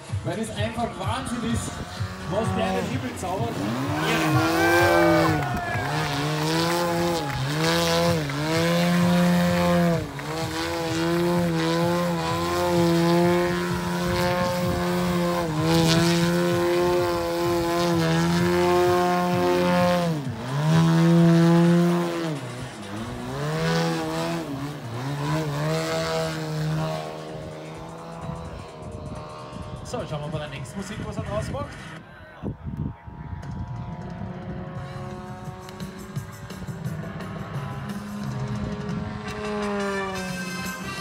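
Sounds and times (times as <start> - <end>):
model plane engine revving: 0.7 - 31.9, 34.3 - 41.0.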